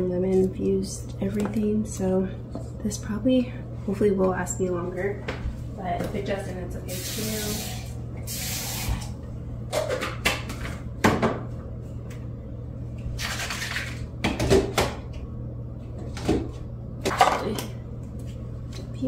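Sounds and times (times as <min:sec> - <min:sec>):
steady low hum: 0:00.0 - 0:19.0
dishes knocking and clattering: 0:09.7 - 0:11.5, 0:14.2 - 0:15.0.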